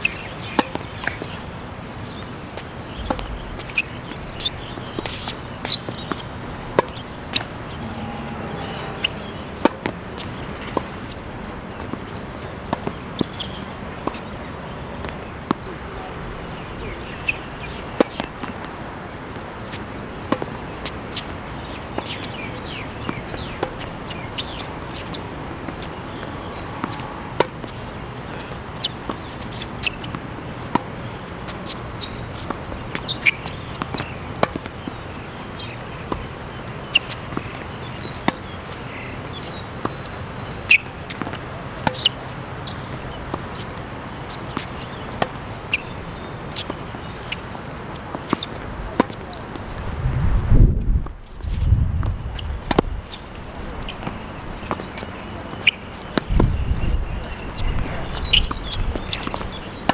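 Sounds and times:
tennis ball bouncing on hard court: 0.5 - 1.4, 2.6 - 11.1, 24.4 - 35.0, 39.3 - 42.3, 48.1 - 49.6, 52.7 - 52.9, 53.9 - 59.9
tennis ball struck by rackets: 0.6 - 1.3, 3.1 - 10.9, 41.1 - 42.2, 52.7 - 52.9.

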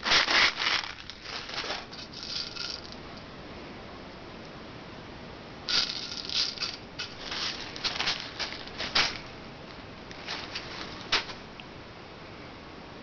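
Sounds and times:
pellets rattling in tin and bag: 0.0 - 3.0, 5.7 - 9.4, 10.1 - 11.4.

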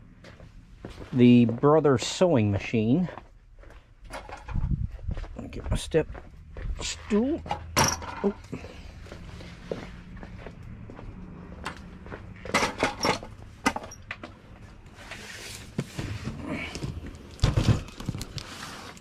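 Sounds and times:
objects knocking and clattering: 4.0 - 4.8, 7.5 - 8.5, 12.4 - 14.4, 15.8 - 18.3
scrape: 14.9 - 16.6, 18.4 - 19.0.

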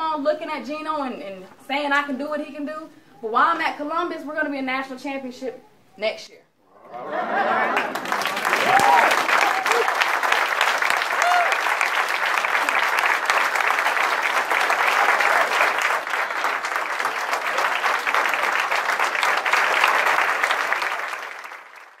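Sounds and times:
audience applauding: 6.9 - 22.0.

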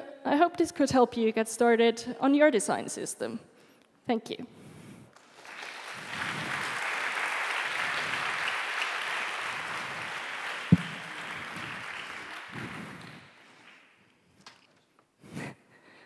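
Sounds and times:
audience applauding: 5.2 - 13.9.

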